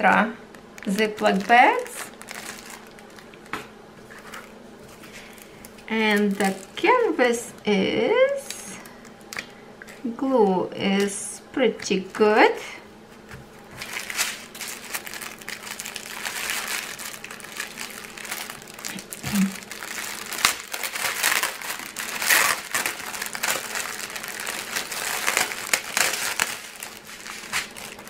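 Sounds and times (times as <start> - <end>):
plastic packaging crinkling: 0.0 - 7.7, 13.6 - 28.0.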